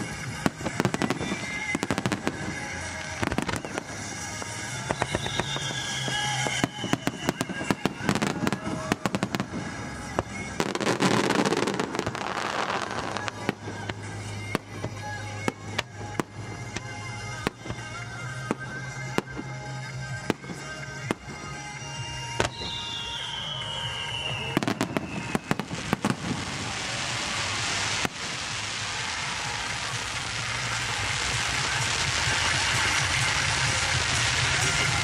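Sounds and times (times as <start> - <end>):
falling firework whistle: 0.0 - 14.6, 21.8 - 35.0
fireworks shells bursting: 0.0 - 19.6, 20.2 - 35.0
crackling firework hiss: 0.0 - 35.0
music through loudspeakers: 0.0 - 35.0.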